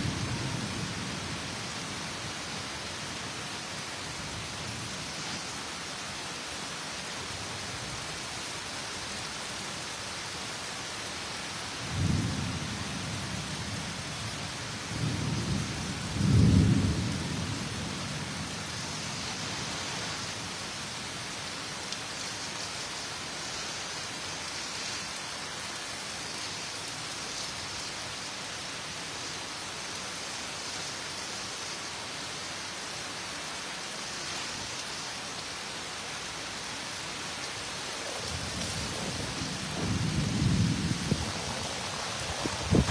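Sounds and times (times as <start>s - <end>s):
heavy rain: 0.0s - 42.9s
thunder rumbling: 38.0s - 42.9s.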